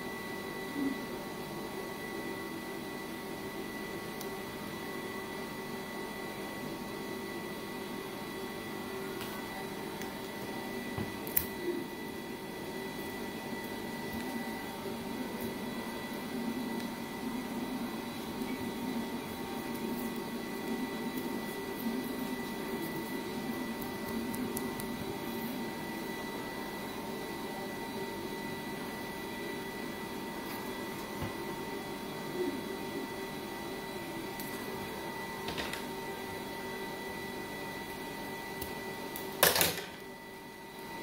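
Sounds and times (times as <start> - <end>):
machine hum with high whine: 0.0 - 41.0.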